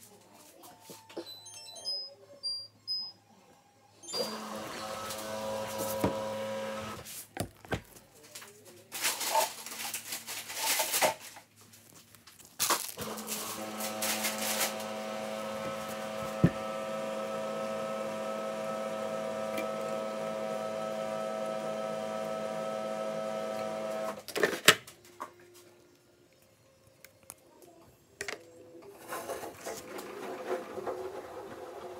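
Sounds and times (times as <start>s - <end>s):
detergent powder scraping: 4.2s - 8.0s, 8.9s - 24.1s, 28.9s - 31.9s.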